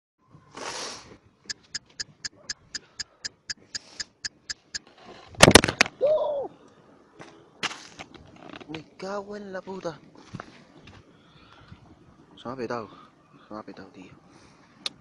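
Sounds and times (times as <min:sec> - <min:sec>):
person crying out: 0:06.0 - 0:06.5.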